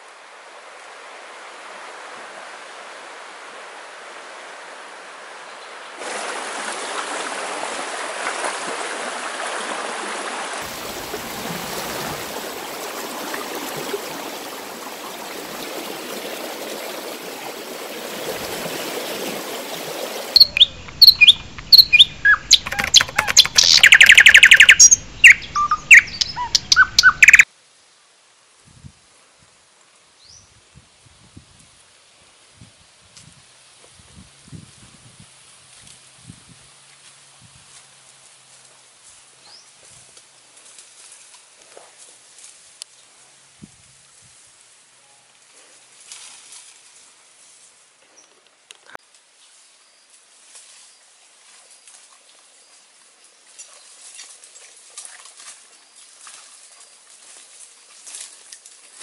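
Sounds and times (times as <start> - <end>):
river water rushing: 0.0 - 21.4
bird chirps and calls: 20.4 - 27.4.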